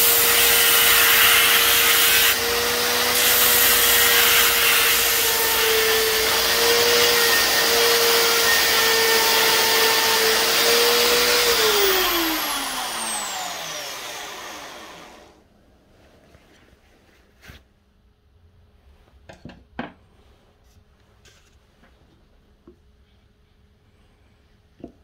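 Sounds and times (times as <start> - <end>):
sanding hiss: 0.0 - 2.4, 3.2 - 5.6
drill motor hum: 0.1 - 15.4.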